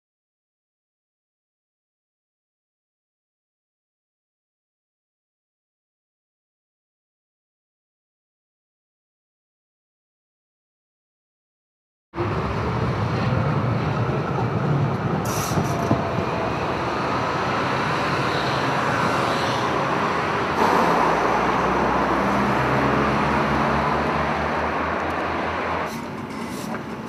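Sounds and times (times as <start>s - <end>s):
cars going by: 12.2s - 27.0s
tram running on rails: 12.2s - 27.0s.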